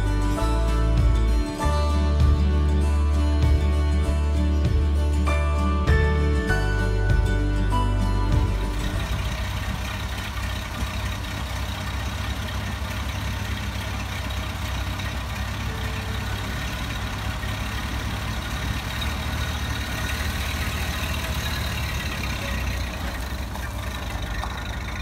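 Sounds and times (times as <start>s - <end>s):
car engine idling: 0.0s - 25.0s.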